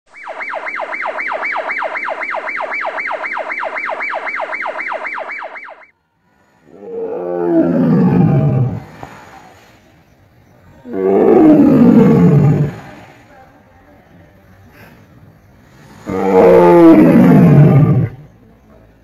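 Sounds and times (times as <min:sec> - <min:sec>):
electronic siren wail: 0:00.1 - 0:05.9
tiger roaring: 0:06.6 - 0:09.0, 0:10.8 - 0:13.0, 0:15.9 - 0:18.3.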